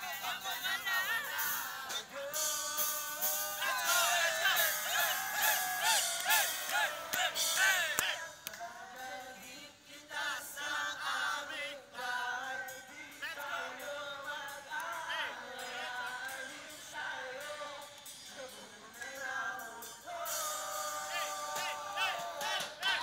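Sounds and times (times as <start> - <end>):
live concert music: 0.0 - 8.2
voices singing: 0.0 - 23.0.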